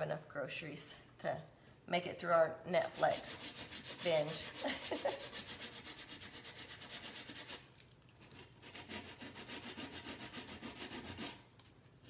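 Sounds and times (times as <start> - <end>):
hand sanding wood: 2.9 - 7.7, 8.6 - 11.4.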